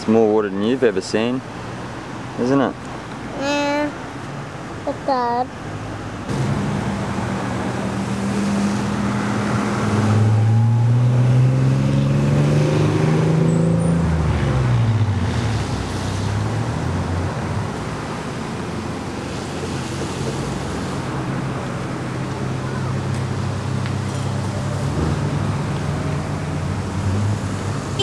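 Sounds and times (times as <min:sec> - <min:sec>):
vehicle passing close by: 0:05.7 - 0:28.0.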